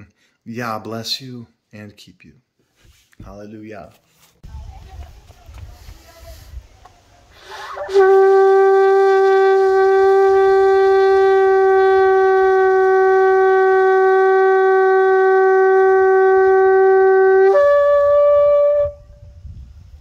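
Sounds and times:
shofar blast: 7.6s - 19.4s.

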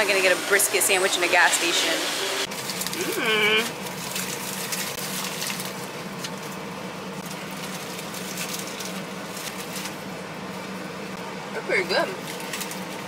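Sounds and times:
steady low hum: 0.0s - 13.0s
foil wrapper crinkling: 2.5s - 10.9s, 12.1s - 13.0s.

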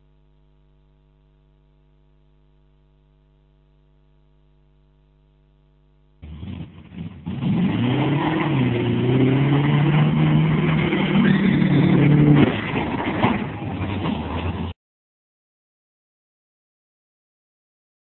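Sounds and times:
faint electrical hum: 0.0s - 6.2s
truck engine revving: 6.2s - 14.7s.

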